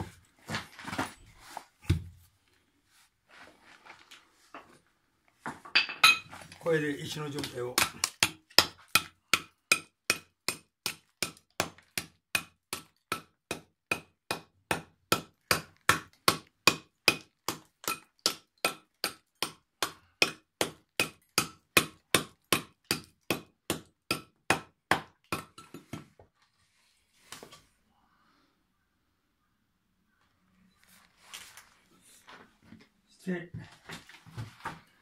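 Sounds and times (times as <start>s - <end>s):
hammer tapping on stone: 7.4s - 26.0s.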